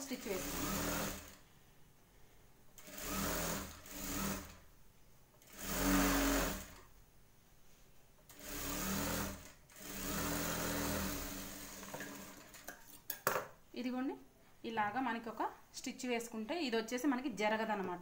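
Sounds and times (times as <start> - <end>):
sewing machine stitching: 0.0 - 1.4, 2.8 - 4.6, 5.4 - 6.9, 8.3 - 12.8.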